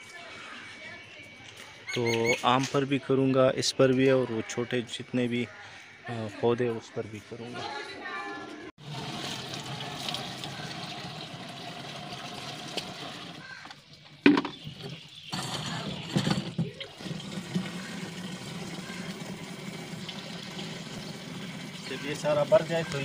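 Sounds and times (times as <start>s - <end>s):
water pouring and splashing: 8.8s - 23.0s
bucket knocks: 14.2s - 18.0s.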